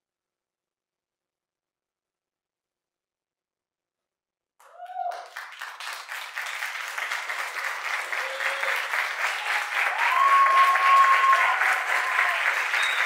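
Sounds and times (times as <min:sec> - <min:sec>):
audience applauding: 0:04.6 - 0:13.0
audience cheering: 0:04.6 - 0:13.0.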